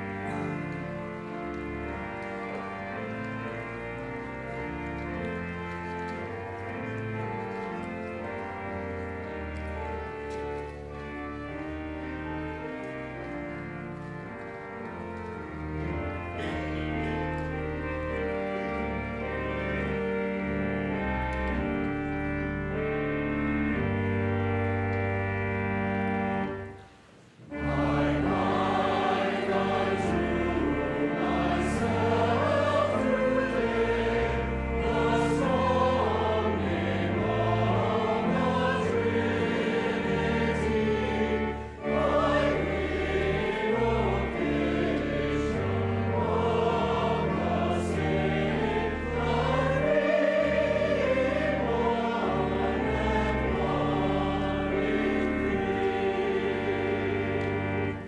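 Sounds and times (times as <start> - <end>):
choir singing a hymn: 0.0 - 24.5, 27.5 - 58.0
organ accompaniment: 0.0 - 58.0.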